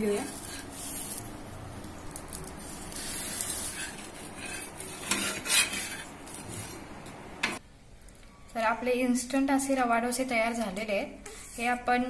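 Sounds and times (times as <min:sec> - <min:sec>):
ladle scraping a hot griddle: 0:00.0 - 0:07.6.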